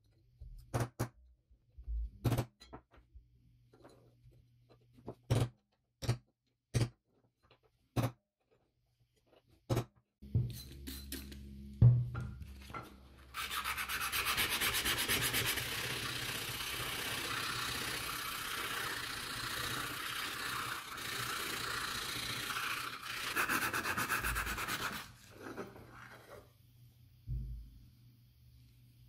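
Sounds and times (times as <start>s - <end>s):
sandpaper rasping on metal: 13.3s - 25.2s.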